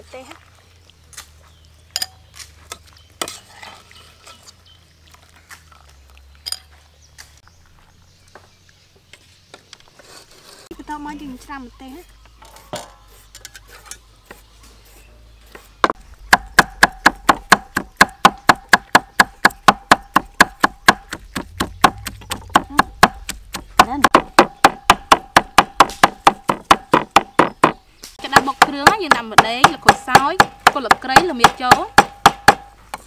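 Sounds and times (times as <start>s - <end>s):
cleaver chopping on wooden block: 15.8s - 33.0s.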